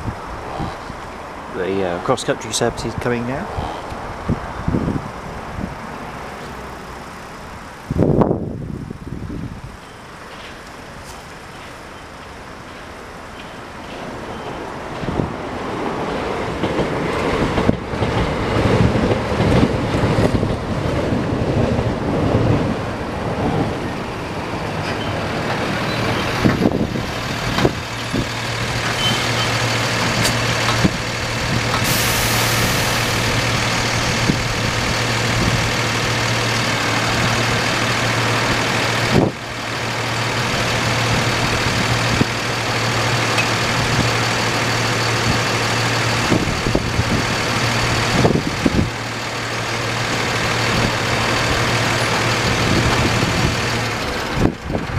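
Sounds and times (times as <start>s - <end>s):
rumbling traffic: 0.0s - 54.9s
heavy vehicle engine idling: 22.9s - 54.9s.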